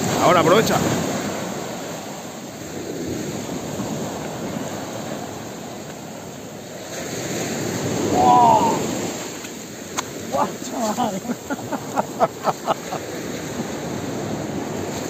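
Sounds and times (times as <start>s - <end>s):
waves breaking on a beach: 0.0s - 15.0s
person shouting: 8.0s - 9.0s, 10.3s - 11.4s.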